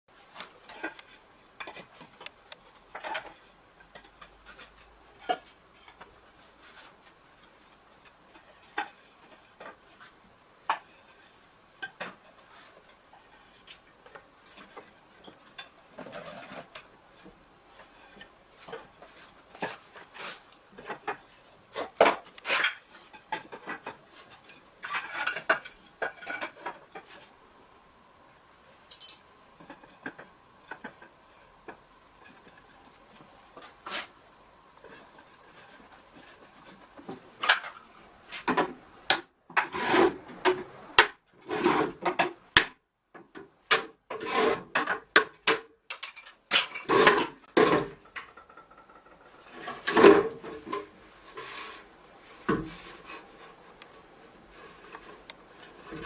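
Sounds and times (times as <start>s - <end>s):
wooden staves clattering: 0.2s - 27.4s, 28.9s - 56.0s.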